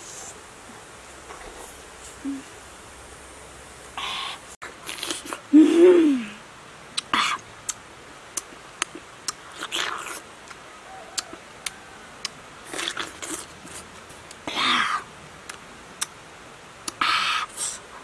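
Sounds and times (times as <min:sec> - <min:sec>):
person humming: 0:02.2 - 0:02.5, 0:05.5 - 0:06.4
lip-smacking clicks: 0:08.4 - 0:10.6, 0:15.5 - 0:16.2
wet slurping bites: 0:12.7 - 0:13.9.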